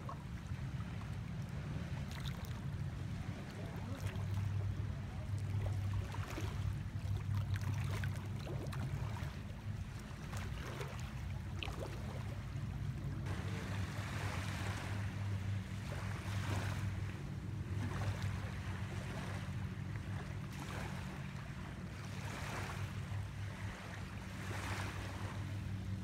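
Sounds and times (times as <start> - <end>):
light splashes: 0.0 - 26.0
steady low hum: 0.0 - 26.0
waves lapping at shore: 0.0 - 26.0.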